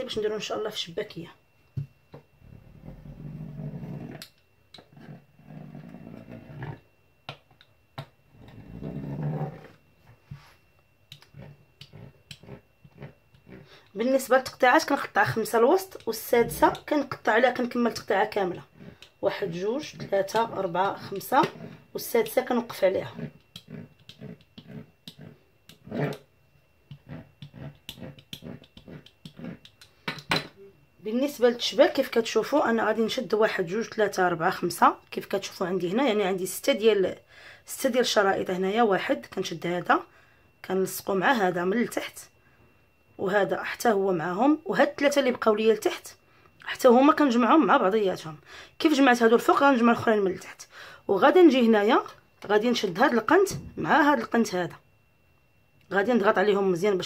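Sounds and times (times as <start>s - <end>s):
pastry wheel rolling on dough: 2.4s - 7.0s, 8.3s - 29.8s
pastry wheel cutting dough on board: 11.1s - 13.7s, 23.0s - 26.2s, 26.9s - 29.8s.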